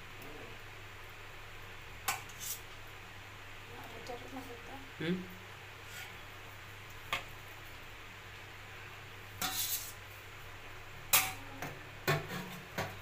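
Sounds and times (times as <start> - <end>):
tongs scraping pot: 2.1 - 2.7, 9.4 - 10.0.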